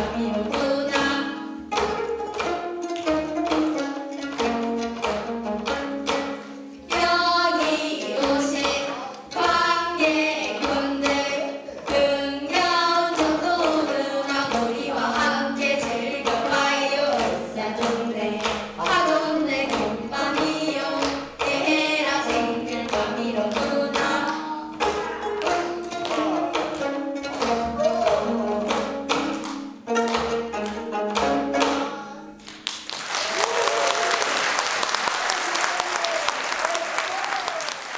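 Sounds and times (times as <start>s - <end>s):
young voices singing together: 0.0s - 1.4s, 6.9s - 25.4s
plucked zither: 0.0s - 32.6s
applause: 32.4s - 37.9s.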